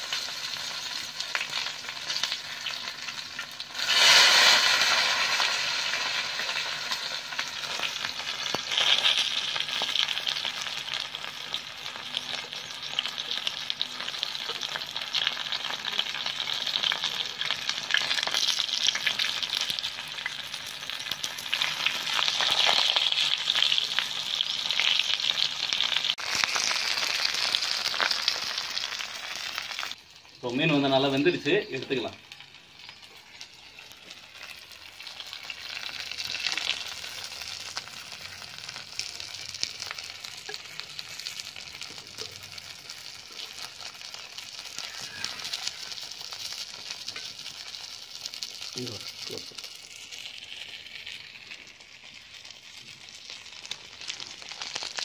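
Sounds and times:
fish frying in hot oil: 0:00.0 - 0:55.0.

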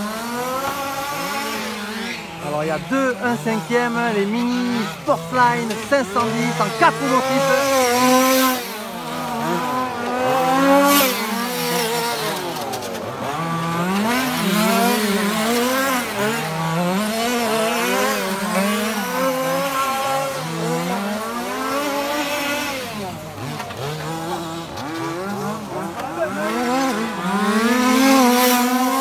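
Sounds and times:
rc car engines revving: 0:00.0 - 0:29.0.

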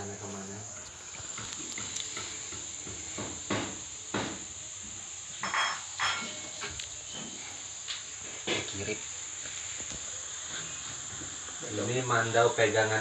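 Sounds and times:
insects chirring: 0:00.0 - 0:13.0
knocks and clinks of objects: 0:05.4 - 0:06.8.

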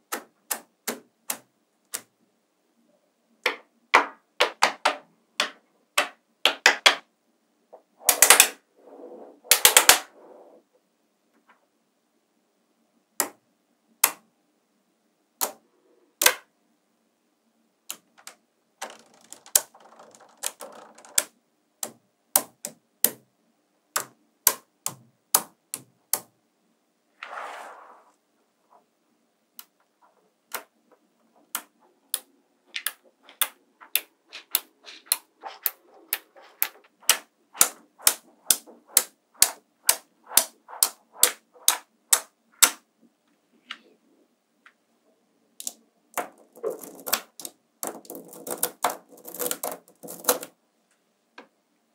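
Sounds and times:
magnetic balls clicking together: 0:08.0 - 0:08.6, 0:09.5 - 0:10.1, 0:17.9 - 0:23.2, 0:31.4 - 0:42.8, 0:45.6 - 0:50.5
brief scrape: 0:27.2 - 0:28.2.

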